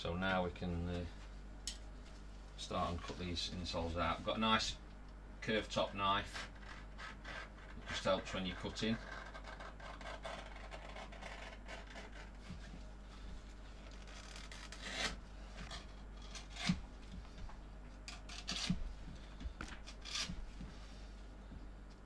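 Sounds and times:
knife cutting leather: 0:06.3 - 0:12.5, 0:14.0 - 0:16.8, 0:18.1 - 0:18.8, 0:19.9 - 0:20.4.

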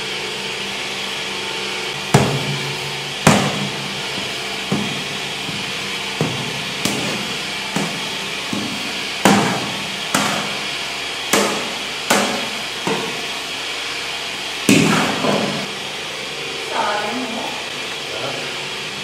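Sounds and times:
steady hum: 0:00.0 - 0:19.0
metal skimmer knocking against tub: 0:02.1 - 0:10.6.

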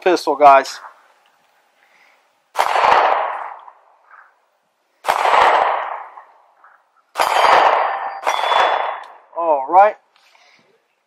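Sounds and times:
pistol shots: 0:02.5 - 0:04.2, 0:05.0 - 0:09.3
metallic ring of steel targets: 0:07.2 - 0:09.2.

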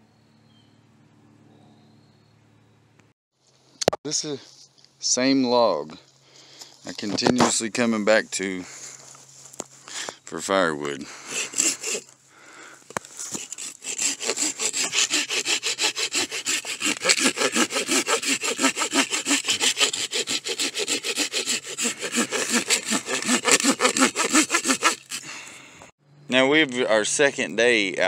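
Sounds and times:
hand saw cutting log: 0:11.0 - 0:12.2, 0:12.9 - 0:25.5.

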